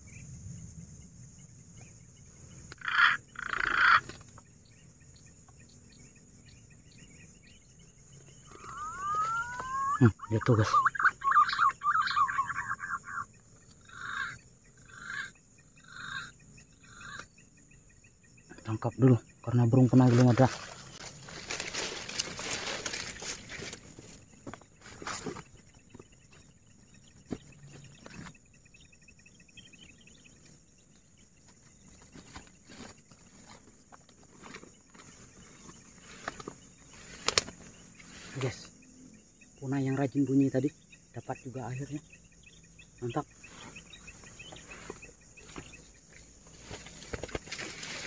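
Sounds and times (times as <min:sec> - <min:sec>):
pigeon calls: 0:02.7 - 0:04.4, 0:08.4 - 0:17.3.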